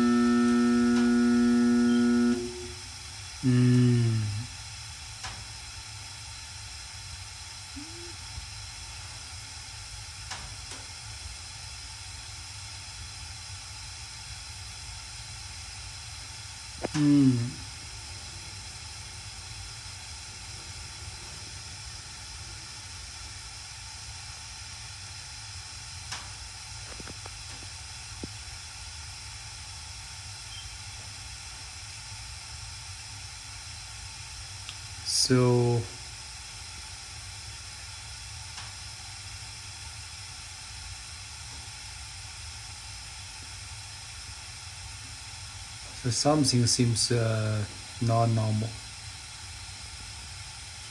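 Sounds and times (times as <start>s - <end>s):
gas burners hissing: 0.0s - 50.9s
short vocal sound: 3.4s - 4.5s, 7.7s - 8.2s, 16.8s - 17.6s.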